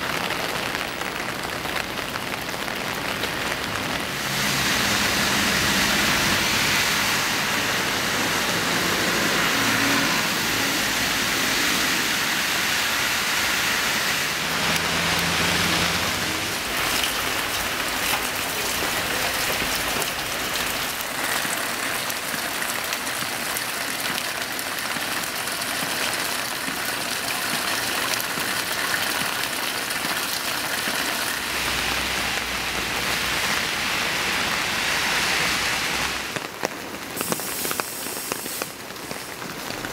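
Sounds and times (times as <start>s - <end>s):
rain hissing on pavement: 0.0s - 39.9s
vehicles passing on wet road: 0.0s - 39.9s.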